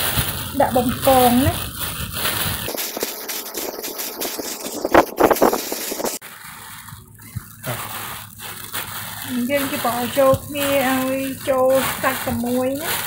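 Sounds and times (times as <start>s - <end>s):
plastic bag crinkling: 0.0s - 13.0s
wet rustling of vegetables: 0.0s - 13.0s.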